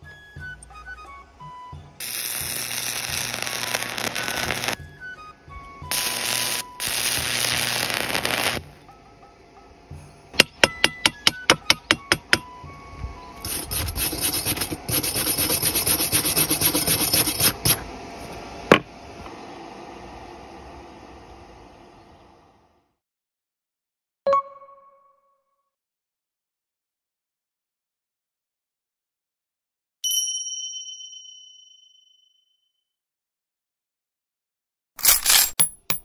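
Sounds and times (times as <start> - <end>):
welding arc crackling hiss: 2.0 - 4.8, 5.9 - 8.6, 14.3 - 17.8.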